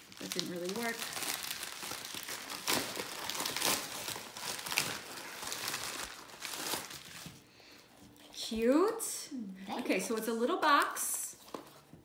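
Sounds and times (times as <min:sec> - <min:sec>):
plastic envelope crinkling: 0:00.0 - 0:07.5.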